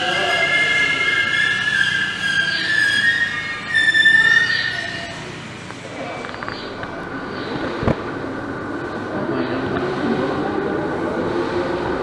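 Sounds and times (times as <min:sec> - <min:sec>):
train wheels squealing: 0:00.0 - 0:05.6.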